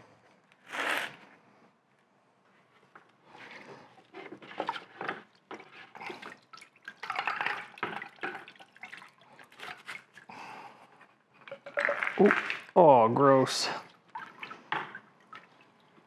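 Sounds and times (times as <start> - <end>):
hand sloshing in bucket of water: 4.0 - 10.3
water splashes and drips: 4.4 - 10.4, 11.4 - 16.0.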